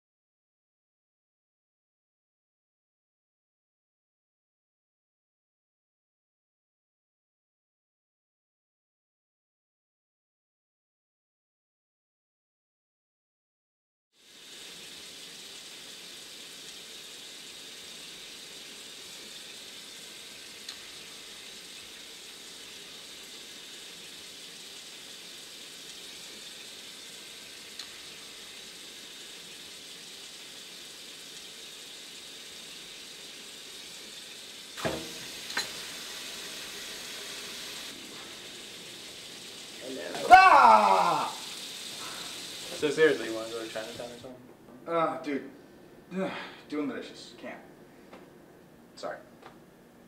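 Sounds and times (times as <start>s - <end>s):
tap water running into sink: 14.2s - 44.3s.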